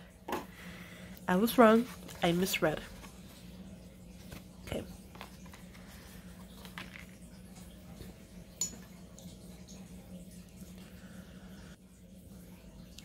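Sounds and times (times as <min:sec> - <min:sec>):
steady low hum: 0:00.0 - 0:13.0
light taps and paper rustles: 0:05.1 - 0:05.9.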